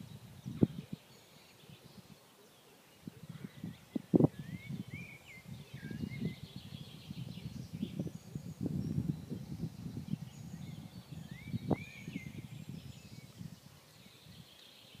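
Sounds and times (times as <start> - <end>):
crackly microphone rumble: 0.0 - 1.0
birds chirping and singing: 0.0 - 15.0.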